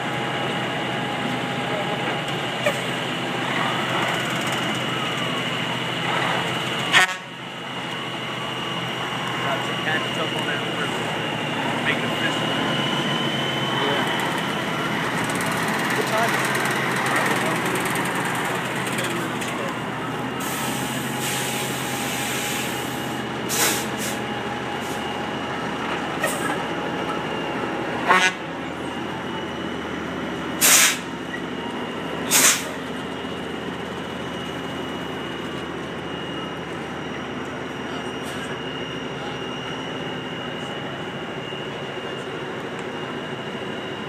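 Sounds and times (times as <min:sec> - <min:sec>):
truck diesel engine running: 0:00.0 - 0:44.0
air brakes hissing: 0:20.3 - 0:25.1, 0:30.6 - 0:31.2, 0:32.2 - 0:32.8, 0:38.2 - 0:38.6.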